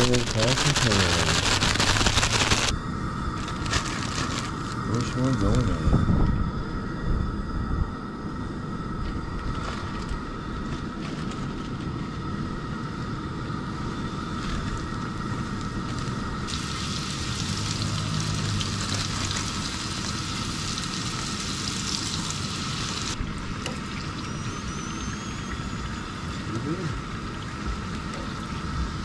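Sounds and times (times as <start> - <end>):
fish sizzling in hot oil: 0.0 - 2.7, 14.2 - 26.5
gas burner flame rushing: 0.0 - 23.7.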